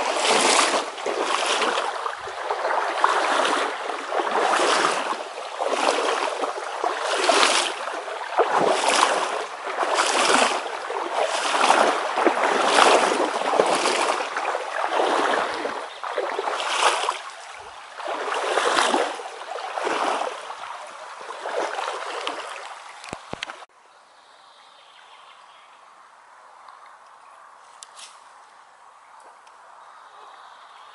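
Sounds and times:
waders splashing through water: 0.0 - 23.7.

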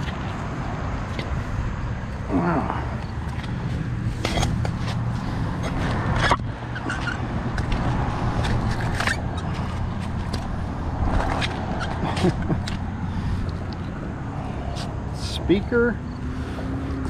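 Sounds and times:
low rumble of road traffic: 0.0 - 17.0
magnet and scrap clinking on concrete: 4.2 - 5.0.

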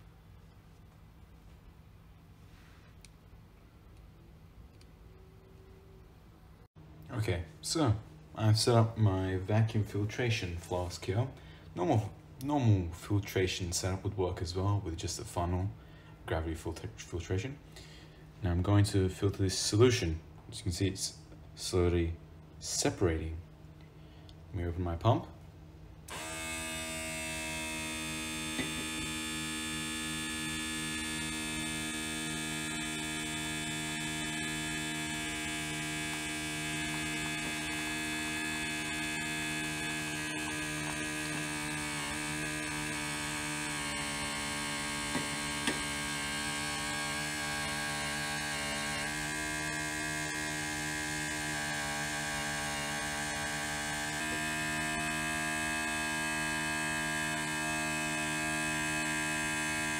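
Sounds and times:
vacuum pump humming: 25.9 - 59.9.

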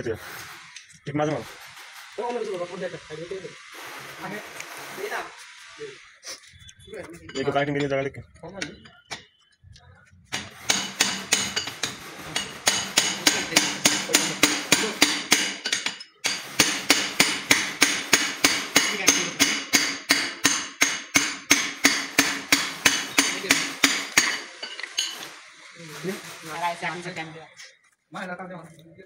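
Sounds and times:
hammer tapping on metal: 10.3 - 25.2.

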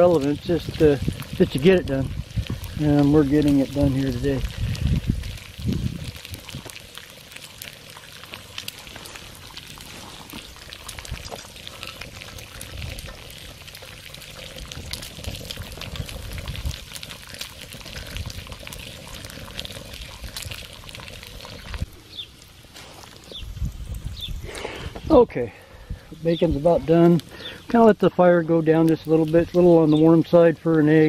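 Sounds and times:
soft low rumbles: 0.0 - 22.2
bacon sizzling and popping: 0.0 - 25.2, 26.1 - 31.0.

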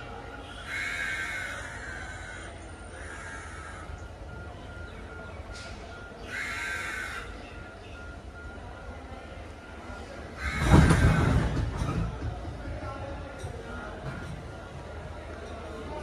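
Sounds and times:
train idling rumble: 0.0 - 16.0
crows cawing: 0.6 - 4.0, 6.2 - 7.4, 10.4 - 11.3.

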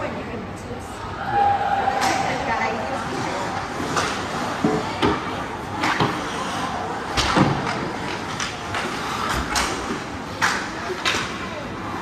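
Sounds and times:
puck and stick hitting boards: 3.8 - 6.4, 7.1 - 11.4.

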